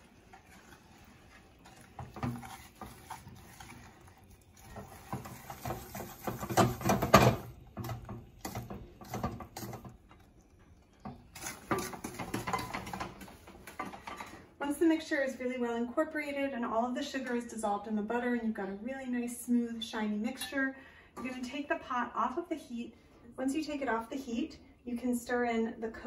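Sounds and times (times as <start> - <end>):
wooden spoon scraping saucepan: 0.0 - 10.0, 11.0 - 14.4.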